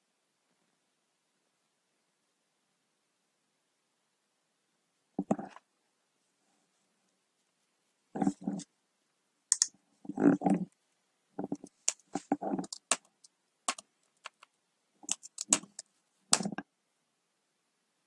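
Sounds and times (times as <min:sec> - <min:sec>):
computer keyboard keystrokes: 0:13.7 - 0:16.6.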